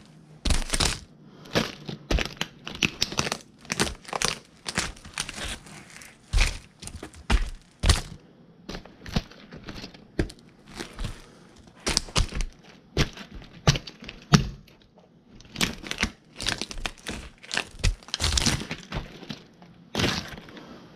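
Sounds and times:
plastic toys cracking: 0:00.0 - 0:20.7.

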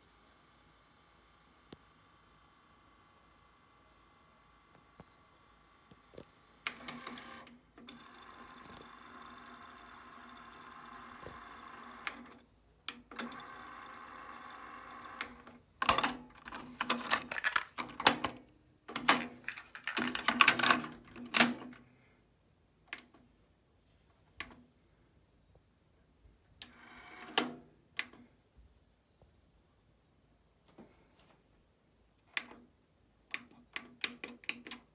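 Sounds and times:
cassette tape transport whirring: 0:00.0 - 0:21.8
plastic clicks and rattles: 0:15.8 - 0:21.8.

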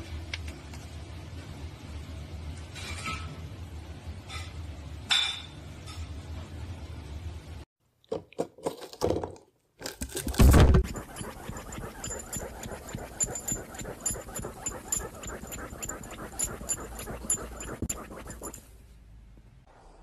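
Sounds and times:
dog claws scratching fabric cushion: 0:10.3 - 0:18.6.

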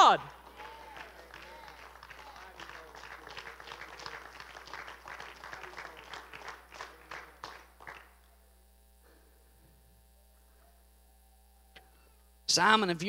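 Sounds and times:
people clapping: 0:00.0 - 0:08.3
faint electrical hum: 0:00.0 - 0:13.0.

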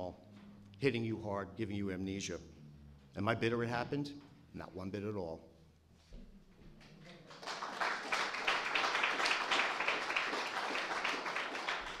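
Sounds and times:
audience applauding: 0:07.1 - 0:12.0.

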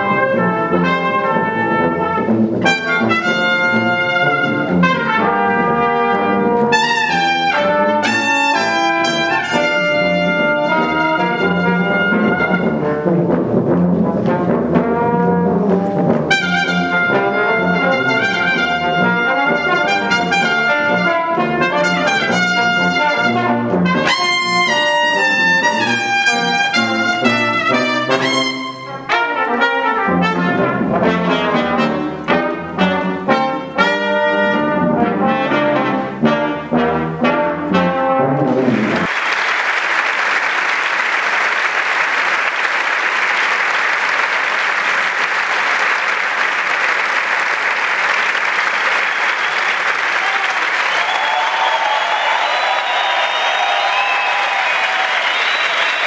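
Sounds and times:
trumpets and tuba playing: 0:00.0 - 0:39.1
audience applause: 0:38.6 - 0:56.0.

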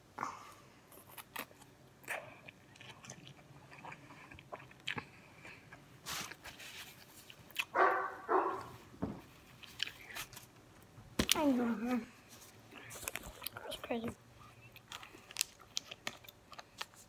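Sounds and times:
chewing food: 0:00.9 - 0:08.8, 0:12.7 - 0:17.0.

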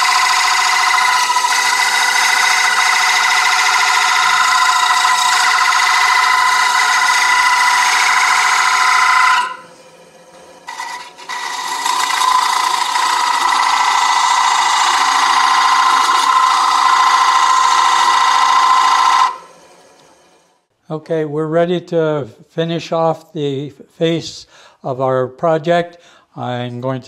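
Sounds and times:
lathe tool cutting wood squeal: 0:00.0 - 0:20.5.

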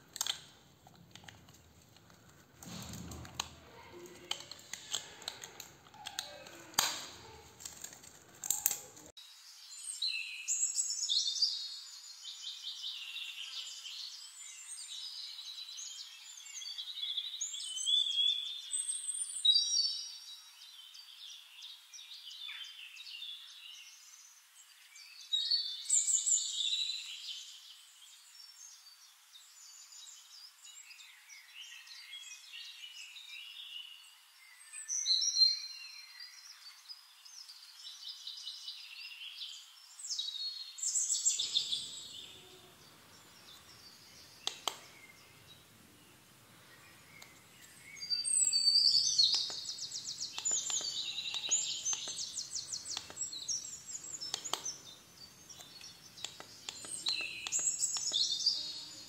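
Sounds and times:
plastic clicking and rustling: 0:00.0 - 0:09.1, 0:49.2 - 0:54.8
birds chirping and whistling: 0:40.0 - 0:45.7, 0:46.6 - 0:59.0.

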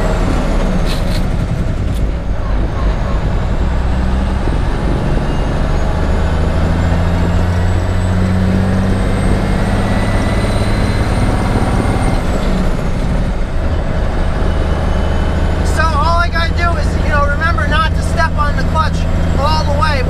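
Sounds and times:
dump truck diesel engine: 0:00.0 - 0:20.0.

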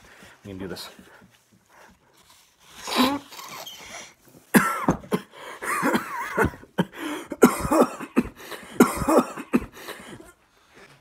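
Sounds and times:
man coughing: 0:04.5 - 0:10.4.

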